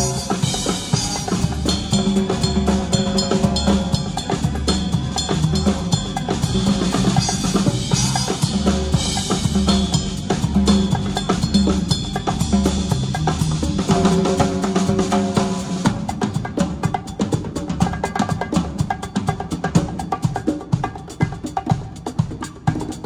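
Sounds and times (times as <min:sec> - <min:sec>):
sustained bass line: 0:00.0 - 0:15.9
fast drum beat: 0:00.0 - 0:23.0
hand drums: 0:00.0 - 0:23.0
live band music: 0:00.0 - 0:23.0.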